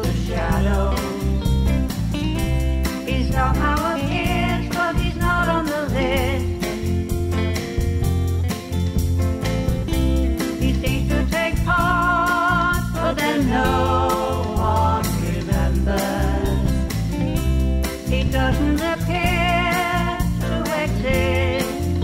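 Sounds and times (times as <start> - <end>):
woman singing: 0.0 - 1.4, 3.0 - 7.0, 10.5 - 16.9, 18.0 - 22.0
pop-rock band playing: 0.0 - 22.0.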